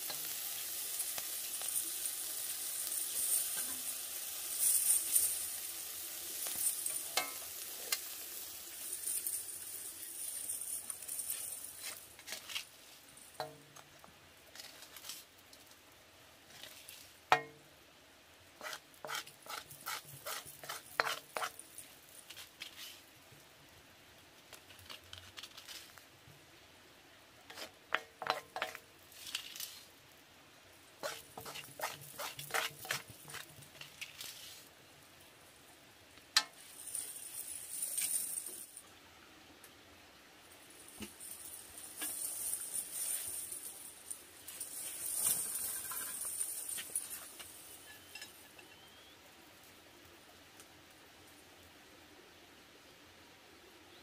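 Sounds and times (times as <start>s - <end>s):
spoon scraping a steel wok: 2.4s - 5.6s, 6.4s - 8.2s, 18.6s - 21.6s, 27.5s - 29.7s, 31.0s - 34.7s, 45.3s - 48.8s.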